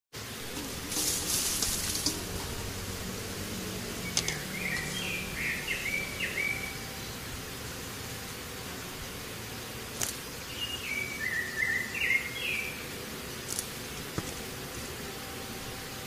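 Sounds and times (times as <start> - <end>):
outdoor ambience: 0.2 - 16.0
bird chirping: 3.9 - 7.3, 10.5 - 12.9.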